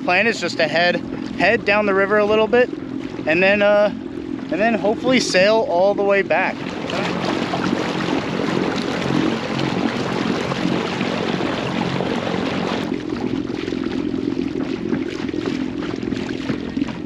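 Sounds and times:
low steady rumble: 0.0 - 17.0
water rushing and splashing: 0.0 - 17.0.

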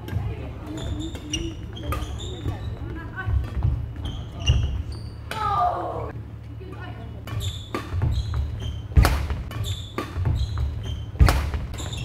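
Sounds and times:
shoes squeaking: 0.0 - 12.0
racket hitting shuttlecock: 6.8 - 12.0.

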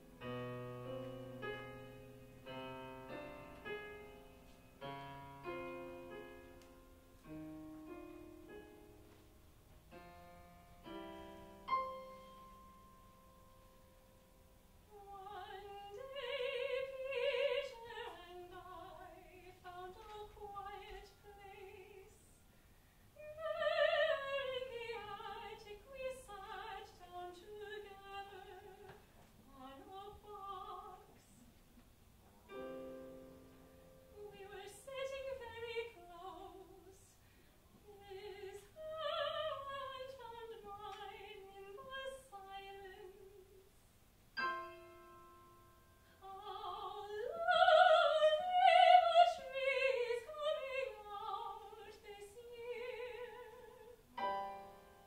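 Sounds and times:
piano accompaniment: 0.0 - 14.8, 32.4 - 34.8, 44.4 - 46.1, 54.0 - 55.0
soprano singing operatic phrases: 14.9 - 22.4, 23.2 - 31.4, 34.1 - 37.2, 37.8 - 43.8, 46.1 - 54.2.

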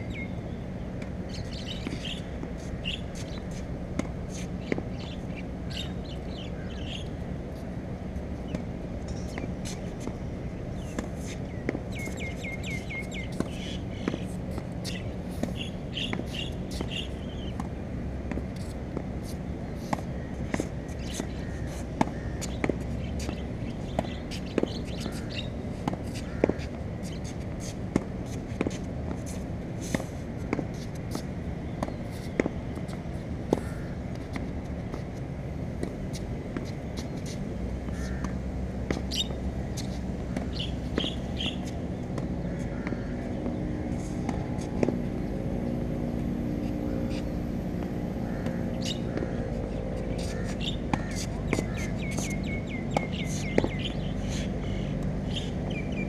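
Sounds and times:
low droning hum: 0.0 - 56.0
racket striking tennis ball: 10.8 - 55.1.

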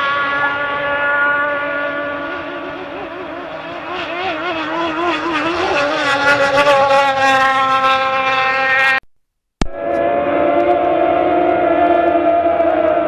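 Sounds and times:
jet boat engine at high revs: 0.0 - 9.0.

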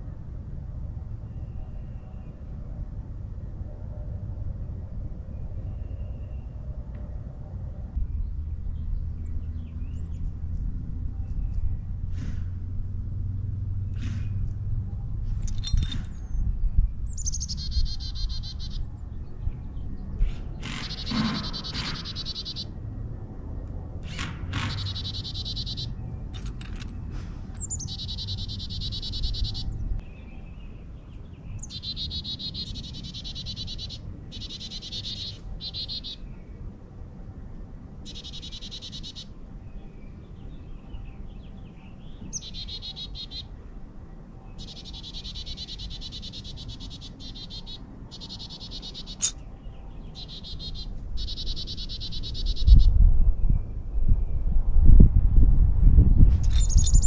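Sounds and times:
high-pitched trilling calls: 17.1 - 18.9, 20.8 - 22.7, 24.8 - 26.5, 27.6 - 29.8, 31.6 - 36.2, 44.6 - 49.4, 56.4 - 57.0.

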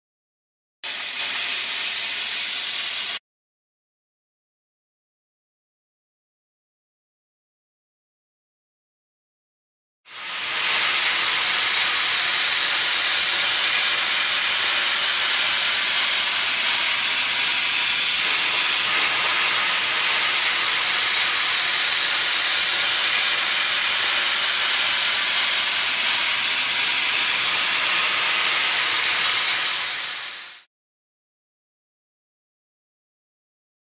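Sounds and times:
steam cleaner hissing: 0.8 - 3.2, 10.1 - 30.7.

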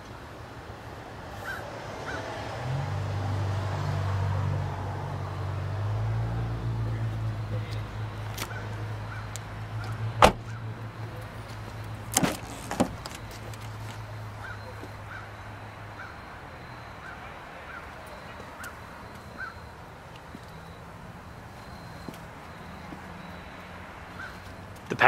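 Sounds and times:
car door shutting: 10.2 - 10.6, 12.1 - 13.7.

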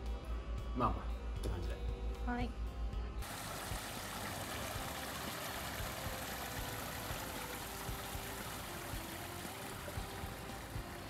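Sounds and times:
running water: 3.2 - 11.0.

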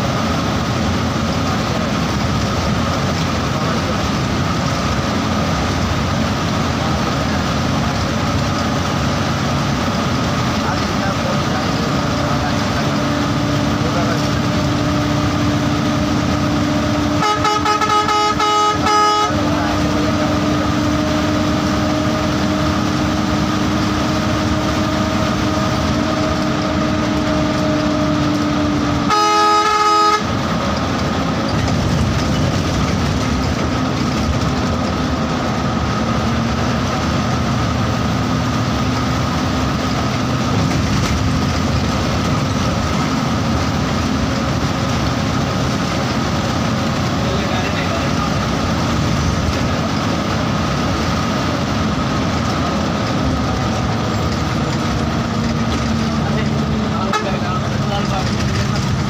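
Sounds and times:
bus engine running: 0.0 - 59.0
bus horn blasts: 16.8 - 21.1, 28.9 - 30.6, 57.0 - 57.7.

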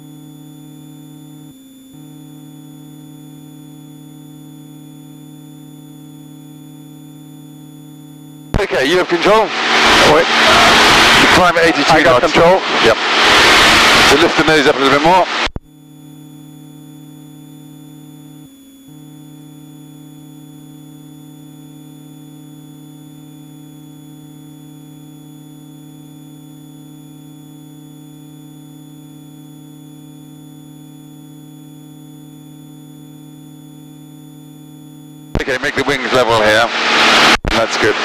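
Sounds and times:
airplane engine and propeller hum: 8.5 - 15.4.

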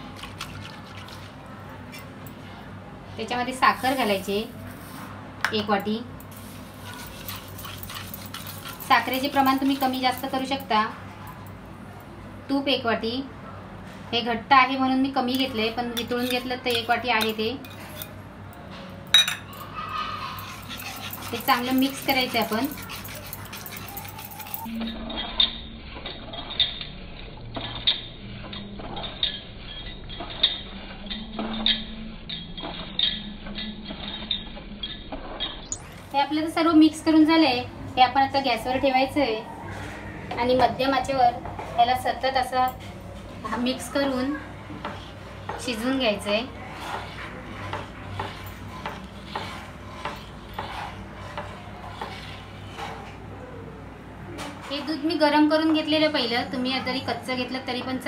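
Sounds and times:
spatula scraping pan bottom: 44.8 - 53.2.

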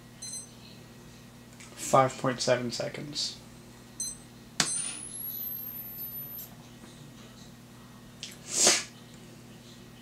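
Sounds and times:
flash charging whine: 4.7 - 6.5.

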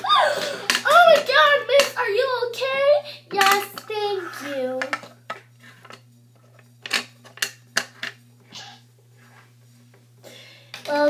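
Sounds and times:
plastic toys clattering on tabletop: 3.4 - 6.0.

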